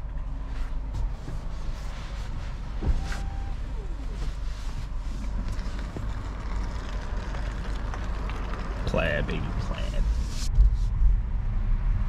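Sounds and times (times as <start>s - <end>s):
tyre and road noise: 0.0s - 12.0s.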